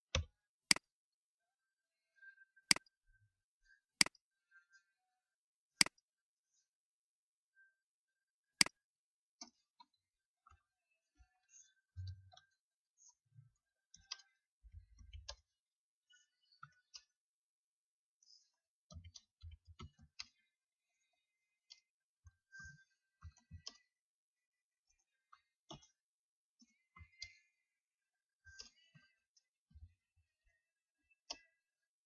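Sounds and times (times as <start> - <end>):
computer mouse clicking: 2.7 - 2.9, 5.8 - 6.0, 31.3 - 31.6.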